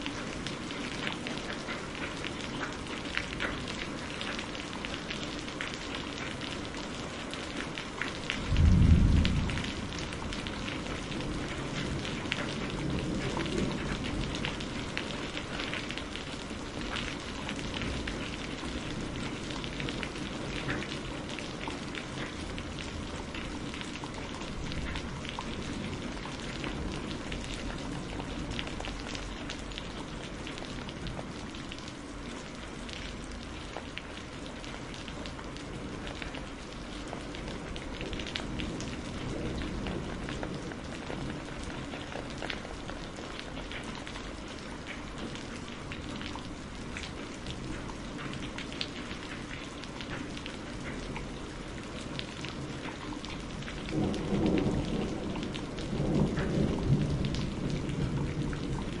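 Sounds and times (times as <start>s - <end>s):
steady rain: 0.0s - 59.0s
thunder: 8.4s - 14.6s, 53.7s - 59.0s.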